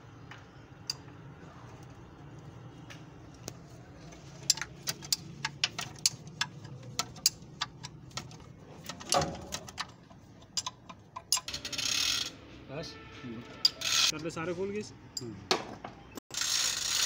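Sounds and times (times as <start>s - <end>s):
wrench clicking on bolts: 4.4s - 12.3s.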